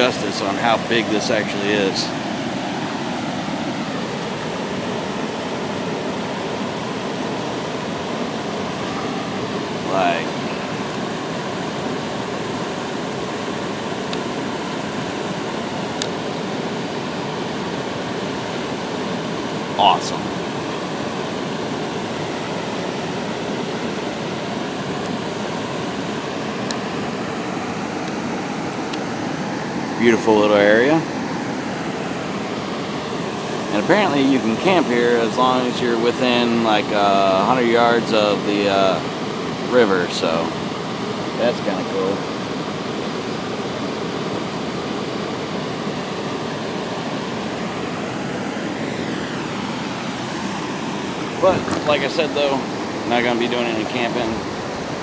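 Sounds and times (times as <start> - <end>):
river rushing through whitewater: 0.0 - 55.0.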